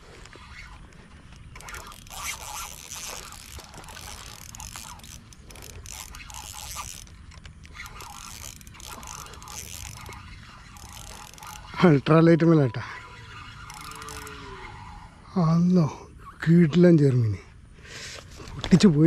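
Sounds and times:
fishing reel clicking and whirring: 0.0 - 15.2.

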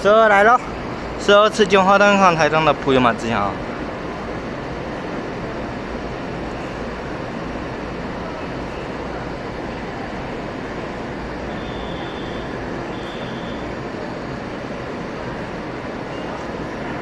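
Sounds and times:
electric train rumble and hum: 0.0 - 17.0
faint high tone: 11.5 - 13.8.

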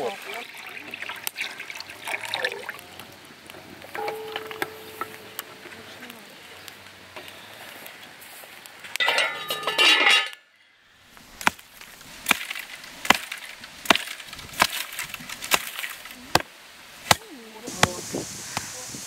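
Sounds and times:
wood fire crackling: 0.0 - 19.0
wooden chopping strikes: 3.9 - 5.7, 11.4 - 18.0.

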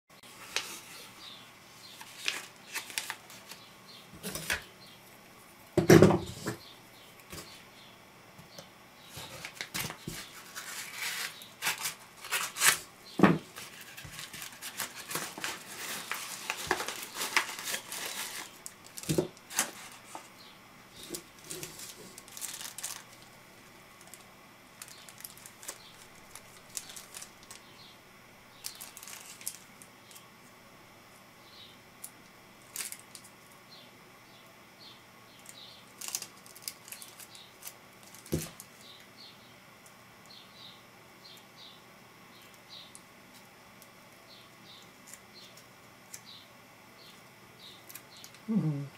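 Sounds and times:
paper and plastic crinkling: 1.9 - 4.6, 9.1 - 20.3, 21.0 - 23.4, 24.0 - 24.2, 24.8 - 27.6, 28.6 - 30.2, 32.7 - 33.3, 36.0 - 38.8
small plastic bag rustling: 1.9 - 4.6, 9.1 - 20.3, 21.0 - 24.2, 24.8 - 27.7, 28.6 - 30.2, 32.7 - 33.2, 35.9 - 38.8.

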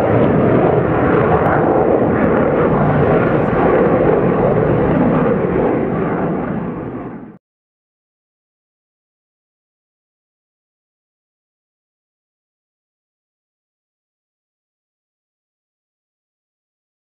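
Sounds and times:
jet passing in afterburner: 0.0 - 7.4.

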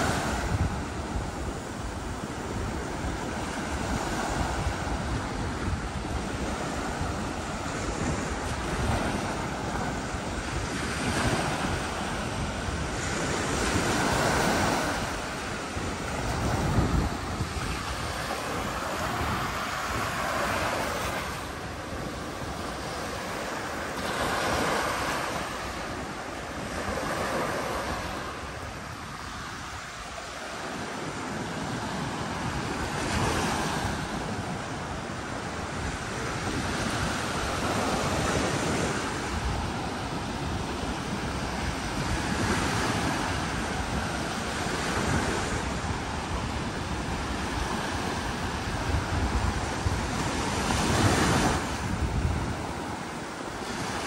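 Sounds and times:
sea waves washing onto beach: 0.0 - 54.0
wind buffeting microphone: 0.0 - 54.0.

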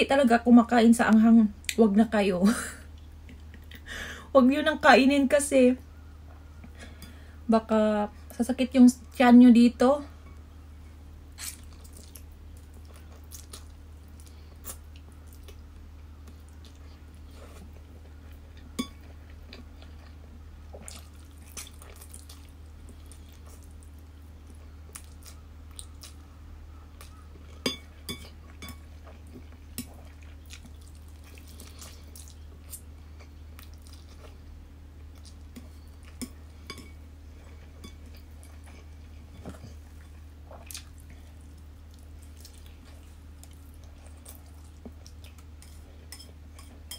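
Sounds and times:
person slurping and chewing noodles: 20.8 - 23.8.

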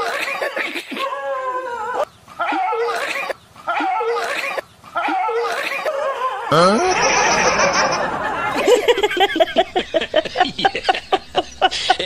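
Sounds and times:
rising cry: 6.4 - 12.0.

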